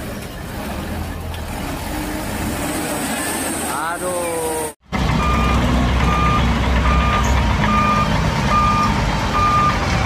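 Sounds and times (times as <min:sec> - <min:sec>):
diesel engine rumble: 0:00.0 - 0:10.0
truck warning beeper: 0:05.2 - 0:10.0.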